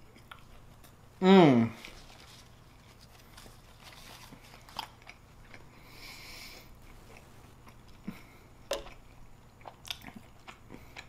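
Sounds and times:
person chewing food: 0.0 - 1.1, 1.8 - 11.0.

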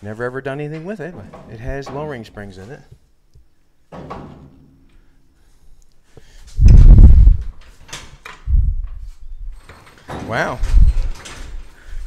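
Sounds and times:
heavy low thud and rumble: 6.6 - 7.6.

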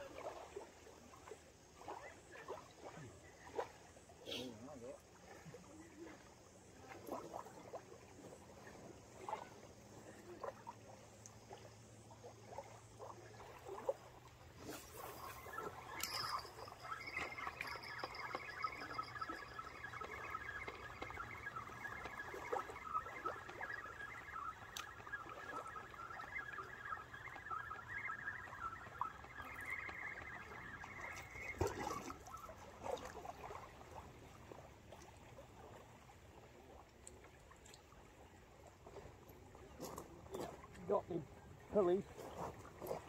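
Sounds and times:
small waves lapping: 0.0 - 43.0
fishing reel whirring: 14.6 - 22.0.

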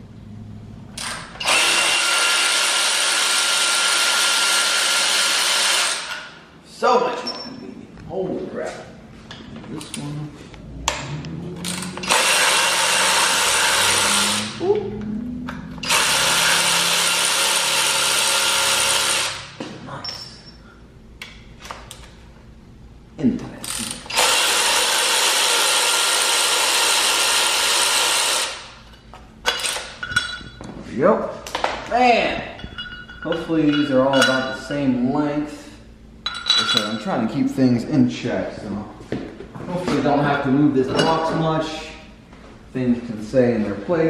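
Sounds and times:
electric ratchet whirring: 1.0 - 6.3, 10.9 - 14.6, 15.7 - 19.6, 23.6 - 28.8.

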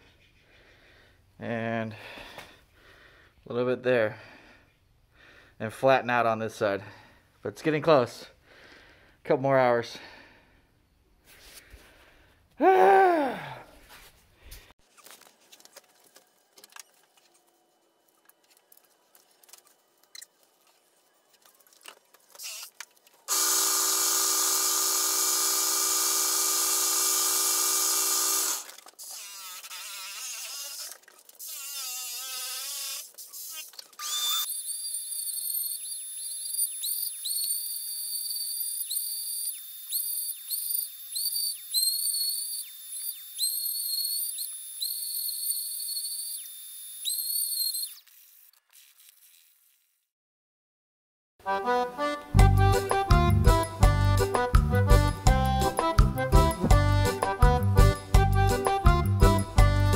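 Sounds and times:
belt sander hum: 23.3 - 28.8
high whistling of foam on belt: 34.3 - 49.4.

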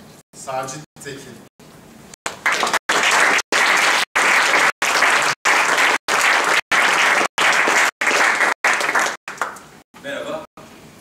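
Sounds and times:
audience applauding: 2.3 - 9.7.

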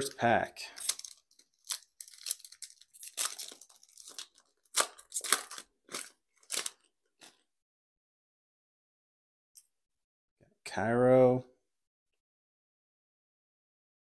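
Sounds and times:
foil wrapper tearing and crinkling: 0.7 - 7.4.

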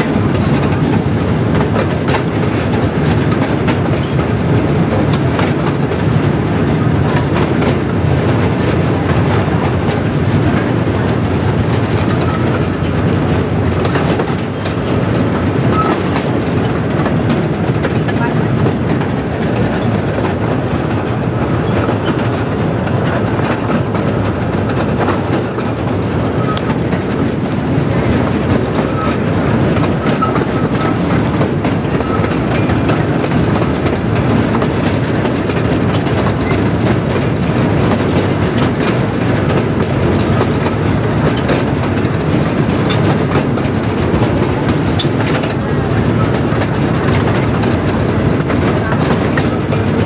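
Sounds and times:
miniature train running on rails: 0.0 - 50.0.

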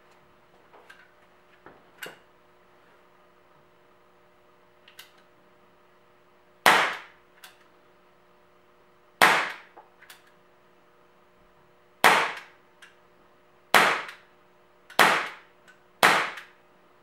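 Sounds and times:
air pistol shots: 6.6 - 7.2, 9.2 - 9.7, 12.0 - 12.6, 13.7 - 14.2, 15.0 - 16.6.

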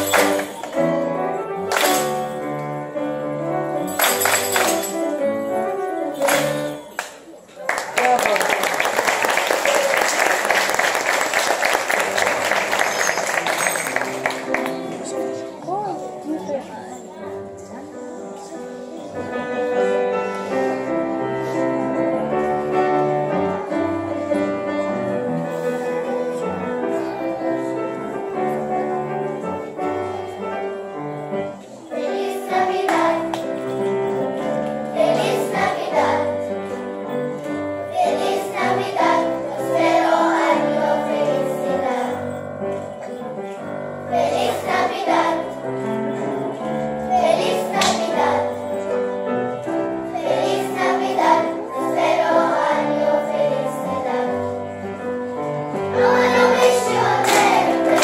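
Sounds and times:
children's choir singing: 0.0 - 7.1, 8.6 - 15.7, 17.2 - 58.0
instrumental accompaniment: 0.0 - 7.4, 10.4 - 58.0.

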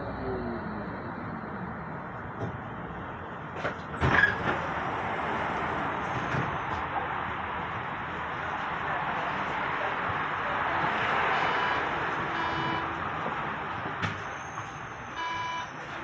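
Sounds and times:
cars passing: 0.0 - 16.0
clunks and knocks: 2.3 - 4.7, 5.6 - 7.0, 13.2 - 14.8.

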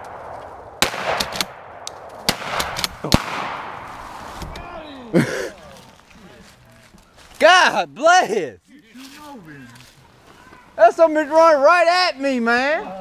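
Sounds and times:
sharp cracks: 0.0 - 4.6
footsteps crunching through dry leaves: 3.8 - 4.5, 5.2 - 7.9, 8.6 - 10.8.

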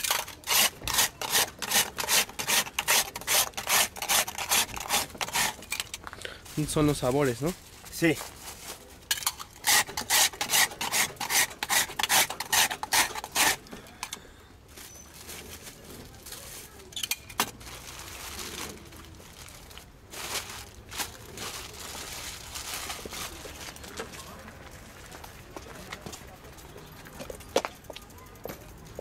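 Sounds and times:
metal ice shaver scraping ice: 0.0 - 6.0, 9.1 - 14.2.

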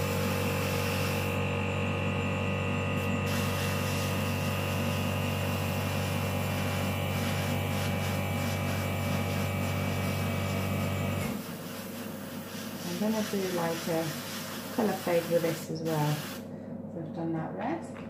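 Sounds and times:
airbrush spraying hiss: 0.0 - 1.4, 3.0 - 10.7, 11.3 - 16.4
compressor humming: 0.0 - 17.6.

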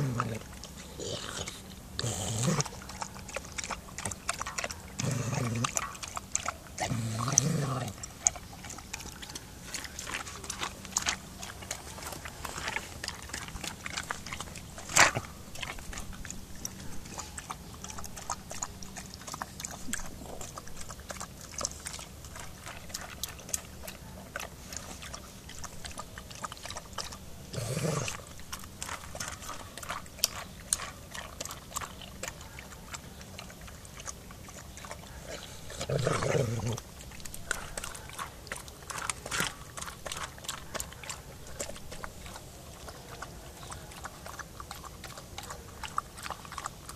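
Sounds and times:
dog growling: 0.0 - 9.2, 25.5 - 31.9, 34.5 - 46.7
dogs crunching kibble: 0.0 - 46.9.

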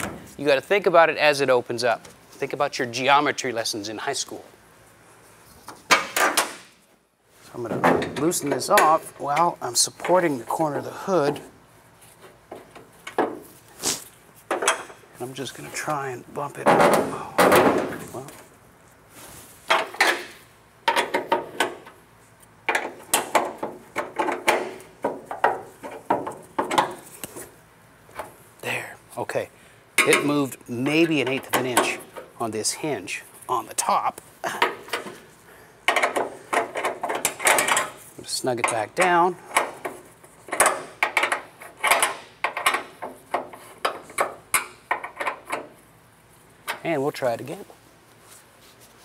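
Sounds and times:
metallic knocks and rattles: 19.7 - 22.0, 22.7 - 27.0, 35.9 - 38.0, 38.6 - 45.8.

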